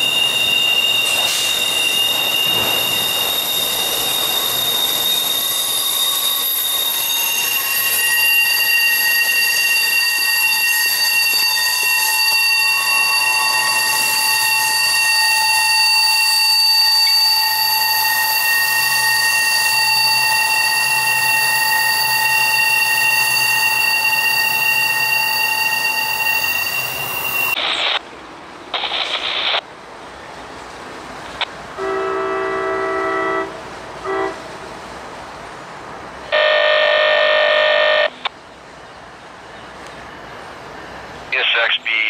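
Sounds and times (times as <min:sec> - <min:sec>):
locomotive air horn: 0:07.9 - 0:26.6, 0:31.8 - 0:34.5, 0:36.3 - 0:38.2.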